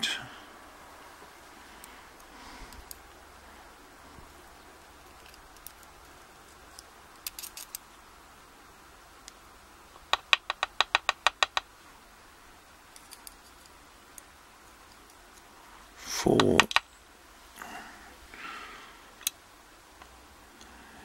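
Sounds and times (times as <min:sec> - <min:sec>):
small metallic clicks: 0:05.0 - 0:07.9, 0:12.9 - 0:15.5.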